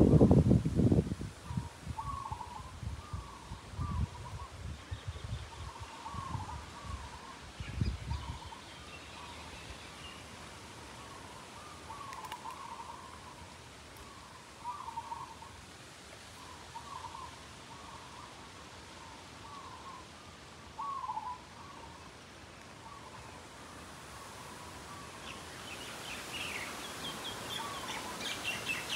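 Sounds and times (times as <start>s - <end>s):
soft outdoor hiss: 0.0s - 28.9s
bird calling in warbling phrases: 14.1s - 15.6s, 20.8s - 22.1s.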